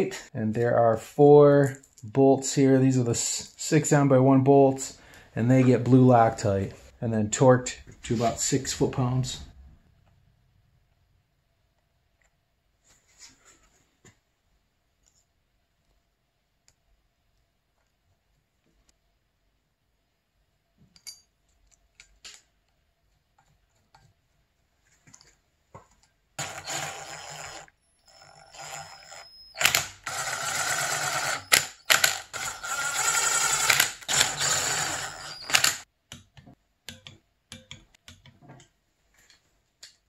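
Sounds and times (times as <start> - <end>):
cordless drill driving bolts: 26.4 - 35.8.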